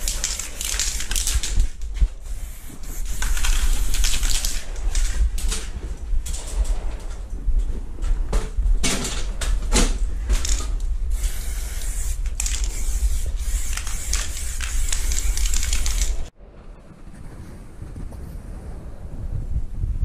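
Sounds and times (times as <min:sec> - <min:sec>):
aerosol spray can hissing: 0:00.0 - 0:04.6, 0:11.1 - 0:16.3.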